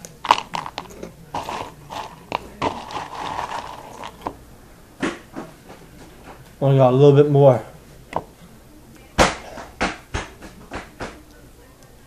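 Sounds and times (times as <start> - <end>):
crunching and chewing snacks: 0.0 - 4.4.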